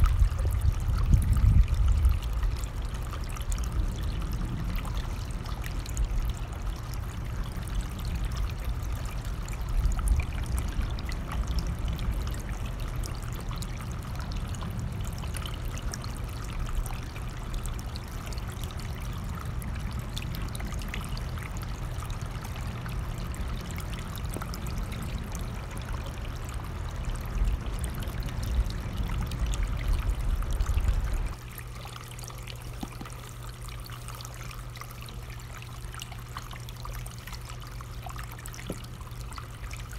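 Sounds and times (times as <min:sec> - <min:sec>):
stream flowing: 0:00.0 - 0:39.9
low rumble: 0:22.0 - 0:31.4.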